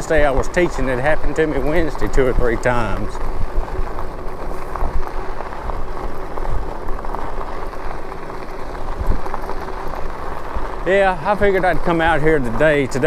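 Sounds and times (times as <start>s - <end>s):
bike tyres crackling on gravel: 0.0s - 13.0s
wind rumble on microphone: 0.0s - 13.0s.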